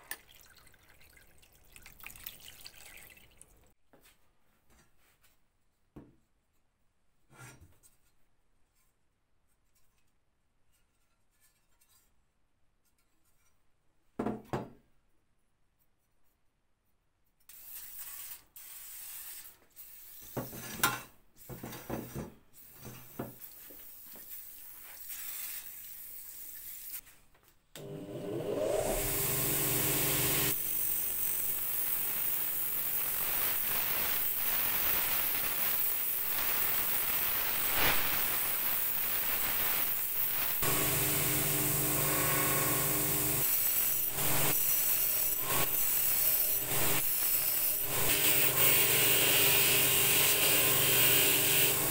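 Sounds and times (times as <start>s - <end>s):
bench grinder whine: 27.8s - 51.9s.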